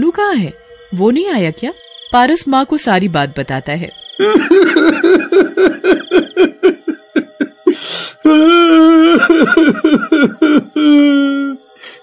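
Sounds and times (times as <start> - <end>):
person wailing: 4.2 - 11.6
person sobbing: 4.2 - 12.0
sharp gasping breath: 7.7 - 8.2, 11.8 - 12.0.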